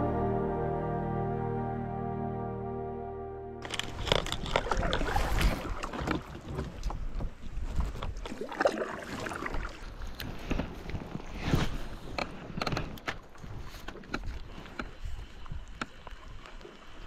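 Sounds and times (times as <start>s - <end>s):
water splashing around kayak: 3.6s - 17.0s
wind on microphone: 3.7s - 8.4s.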